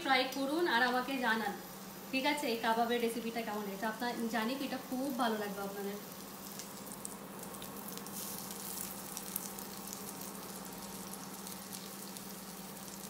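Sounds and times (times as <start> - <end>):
kebabs sizzling in butter: 0.2 - 13.0.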